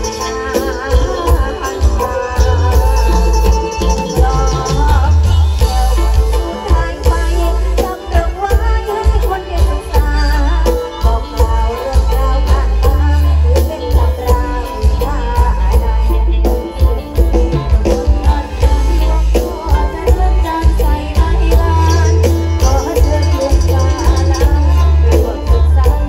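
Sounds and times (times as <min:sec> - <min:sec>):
folk band music over loudspeakers: 0:00.0 - 0:26.0
drum troupe playing: 0:13.6 - 0:26.0.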